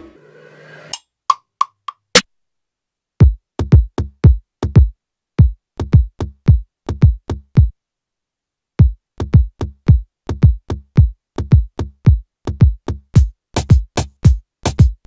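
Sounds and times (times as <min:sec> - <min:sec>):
electronic drum loop: 0:03.2 - 0:07.7, 0:08.8 - 0:15.0.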